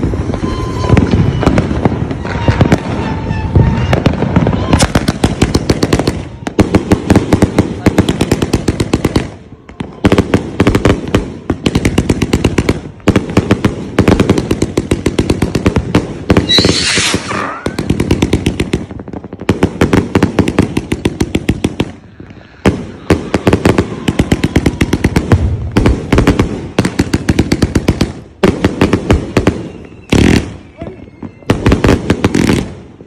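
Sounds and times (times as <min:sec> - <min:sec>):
firework hiss and falling whistle: 0:00.0 - 0:05.1, 0:16.4 - 0:18.0, 0:29.4 - 0:32.6
fireworks bangs and crackles: 0:00.0 - 0:33.0.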